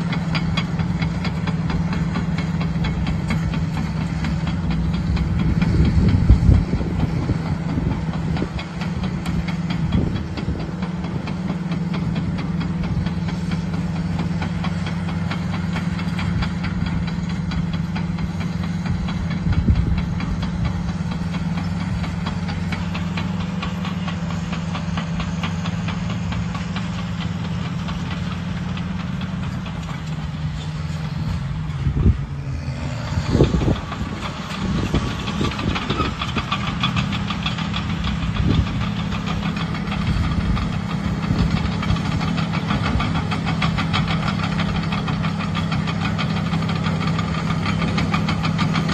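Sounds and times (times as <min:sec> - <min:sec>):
bulldozer diesel engine running: 0:00.0 - 0:48.9
fast even clatter: 0:33.2 - 0:48.9.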